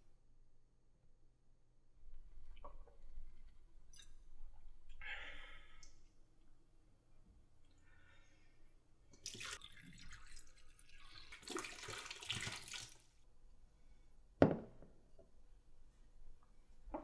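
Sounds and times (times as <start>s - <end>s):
liquid splashing into a sink: 9.2s - 13.1s
glass bottle clunk on hard surface: 14.4s - 14.8s.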